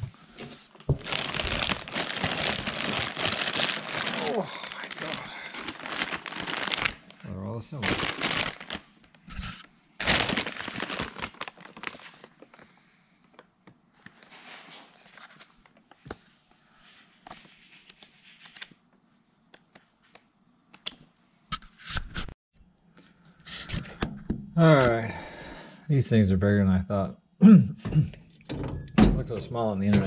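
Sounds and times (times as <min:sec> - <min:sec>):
paper rustling: 0:00.0 - 0:07.2, 0:07.8 - 0:12.7
plastic bags crinkling: 0:00.7 - 0:12.7.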